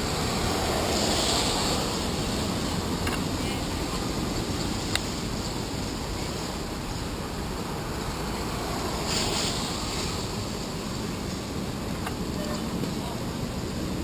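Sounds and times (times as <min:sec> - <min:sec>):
car passing close by: 0:00.0 - 0:03.4
traffic rumble: 0:00.0 - 0:14.0
tyres hissing on wet asphalt: 0:00.0 - 0:14.0.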